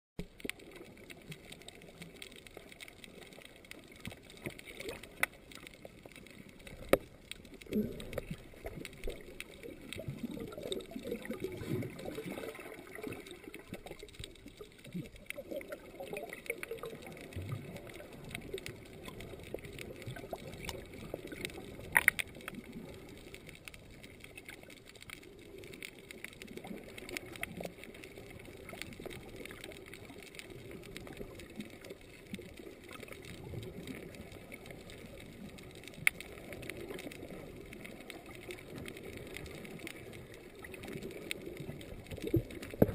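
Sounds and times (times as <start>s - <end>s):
faint clicks: 0.2s - 42.9s
muffled underwater gurgling: 3.0s - 23.5s.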